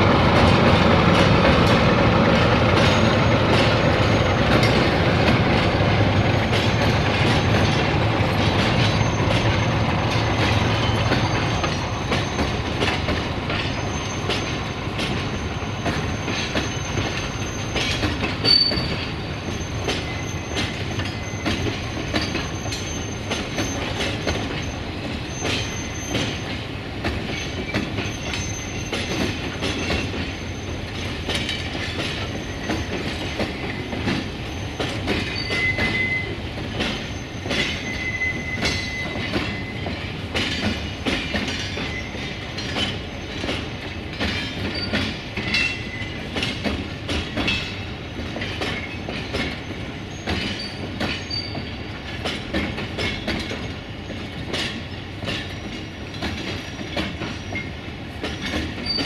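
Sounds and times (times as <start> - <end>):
wheels clattering over rail joints: 0.0 - 59.0
high-pitched wheel squeal: 18.4 - 21.7, 34.6 - 36.4, 37.1 - 39.9.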